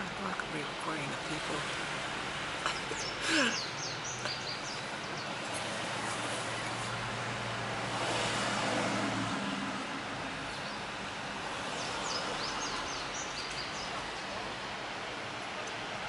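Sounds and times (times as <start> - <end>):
car road and cabin noise: 0.0 - 16.0
bird chirping: 2.7 - 5.4.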